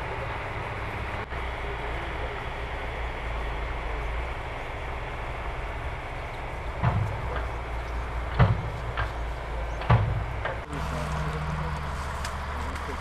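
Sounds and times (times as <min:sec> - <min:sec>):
low mechanical rumble: 0:00.0 - 0:13.0
sharp knocks: 0:06.8 - 0:07.6, 0:08.3 - 0:10.7.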